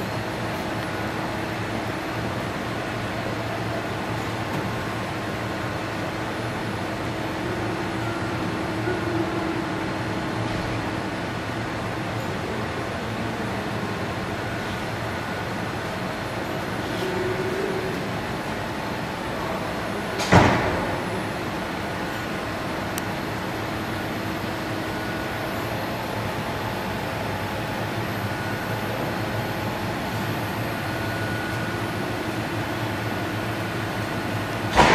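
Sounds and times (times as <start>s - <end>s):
calender machine running: 0.0s - 34.9s.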